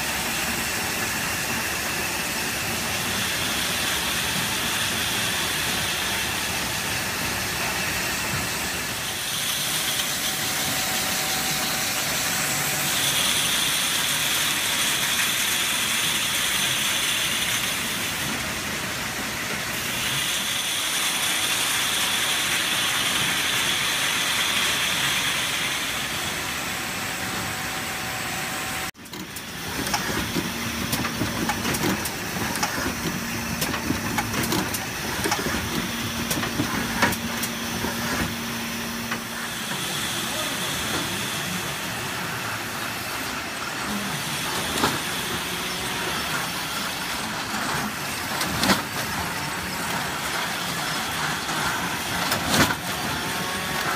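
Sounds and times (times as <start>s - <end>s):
bottling line machinery din: 0.0s - 53.9s
packing machine clatter: 29.0s - 41.4s, 42.8s - 53.9s.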